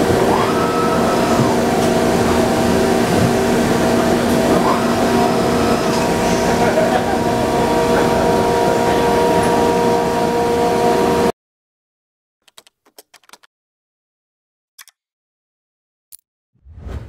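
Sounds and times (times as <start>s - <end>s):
machine running: 0.0s - 11.3s
keyboard typing clicks: 12.4s - 13.5s.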